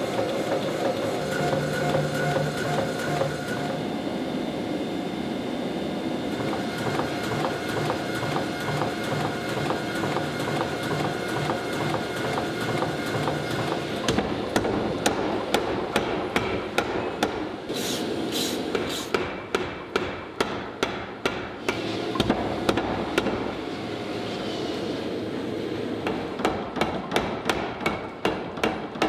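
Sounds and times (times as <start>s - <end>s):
forge machinery running: 0.0s - 19.2s.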